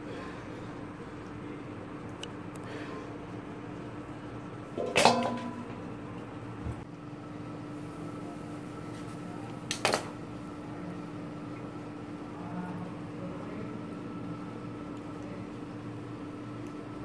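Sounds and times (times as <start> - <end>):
steel bowl clattering in sink: 4.8 - 5.8.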